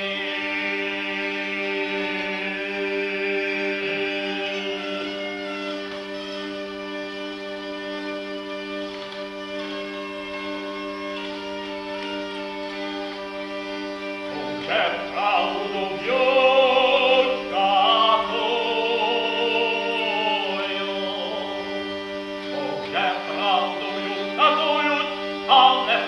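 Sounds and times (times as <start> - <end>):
hurdy-gurdy drone: 0.0 - 26.0
man singing folk song: 14.4 - 21.7, 22.6 - 26.0.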